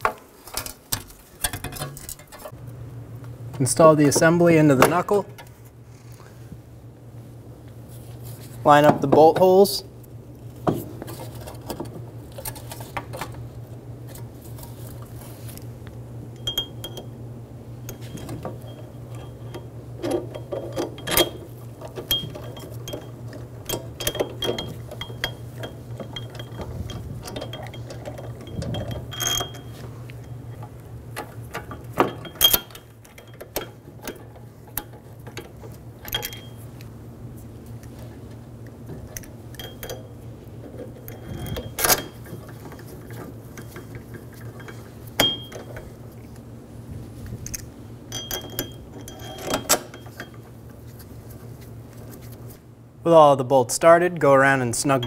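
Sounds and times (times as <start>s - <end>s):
metal clicks and scrapes: 0.0s - 2.6s
steady low hum: 0.0s - 55.0s.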